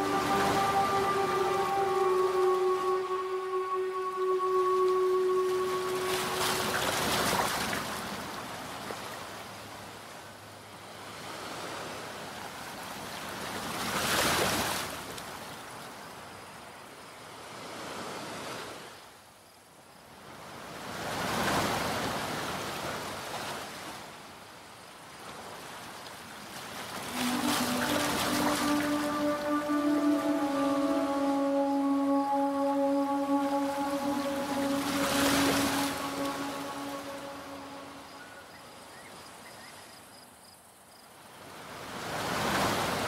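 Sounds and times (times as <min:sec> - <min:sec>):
held musical chord: 0:00.0 - 0:08.2, 0:27.0 - 0:38.7
waves washing in: 0:00.0 - 0:09.8, 0:26.5 - 0:38.8, 0:41.5 - 0:43.0.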